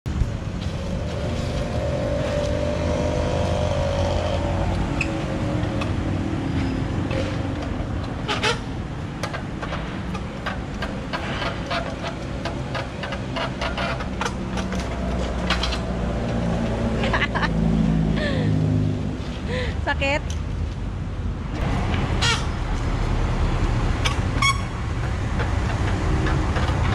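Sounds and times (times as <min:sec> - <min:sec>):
low rumble of traffic: 0:00.1 - 0:26.9
passing engine: 0:00.2 - 0:09.0, 0:14.1 - 0:19.9.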